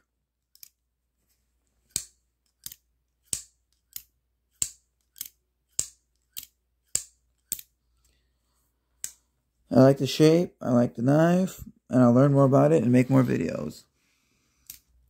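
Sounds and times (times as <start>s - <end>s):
folding knife blade clicking: 1.9s - 7.7s.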